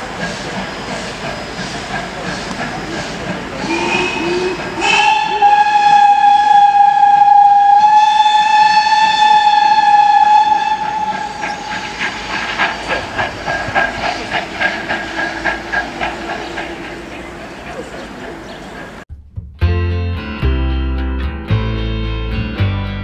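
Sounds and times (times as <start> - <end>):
locomotive exhaust chuffing: 0.0 - 19.0
steam locomotive whistle: 3.6 - 13.1.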